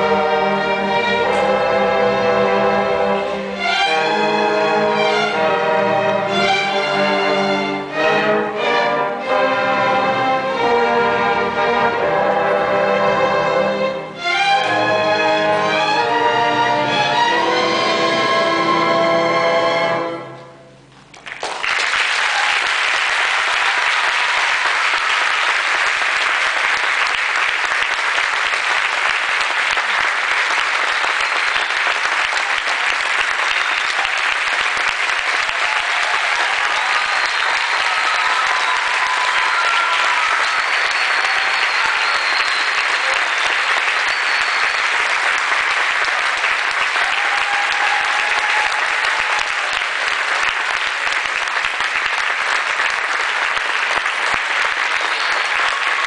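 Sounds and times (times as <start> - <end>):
audience applauding: 21.0 - 56.0.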